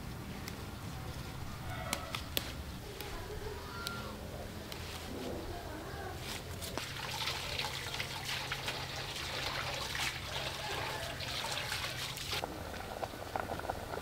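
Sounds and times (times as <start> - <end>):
water running and splashing: 6.7 - 12.9.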